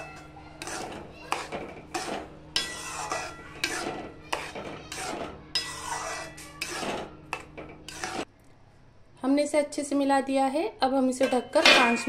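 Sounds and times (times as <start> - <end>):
steel spoon scraping a pan: 0.0 - 8.3.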